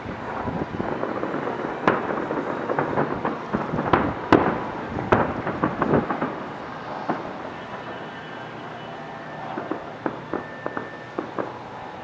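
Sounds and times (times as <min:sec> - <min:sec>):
rumble of distant bursts: 0:00.0 - 0:12.0
firework shells bursting: 0:00.2 - 0:12.0.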